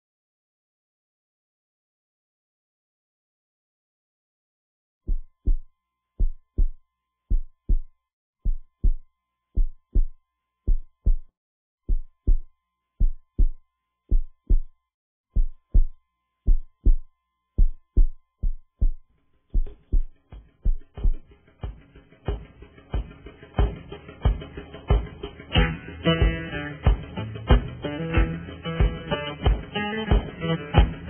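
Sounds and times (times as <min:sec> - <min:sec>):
heartbeat thumps: 0:05.1 - 0:11.3, 0:11.9 - 0:14.8, 0:15.4 - 0:31.0
music: 0:19.6 - 0:31.0.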